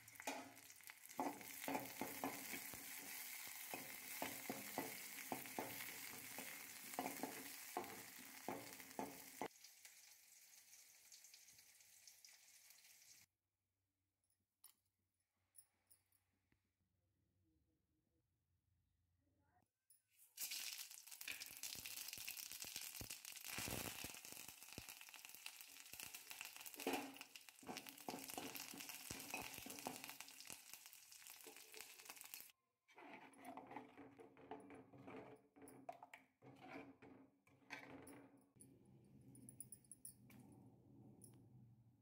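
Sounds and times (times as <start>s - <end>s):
nuts sizzling in hot oil: 0.0s - 13.3s, 20.2s - 32.6s
spatula scraping and stirring: 0.2s - 9.5s, 26.0s - 38.6s.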